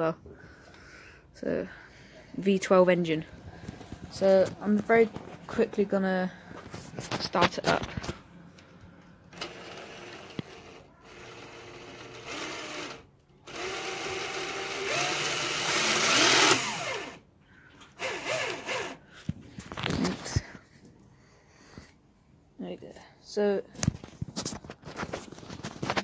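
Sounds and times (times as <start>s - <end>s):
cordless drill running: 9.3s - 17.2s, 18.0s - 19.0s.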